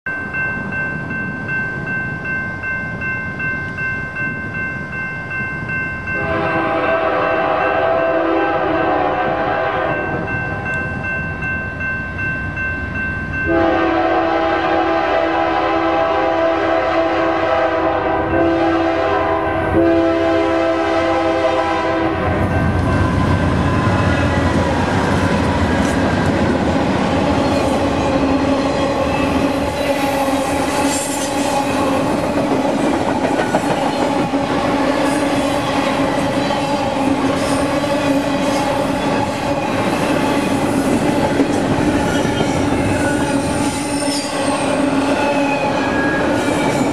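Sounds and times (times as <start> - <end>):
train air horn blasts: 6.2 - 10.3, 13.5 - 24.5.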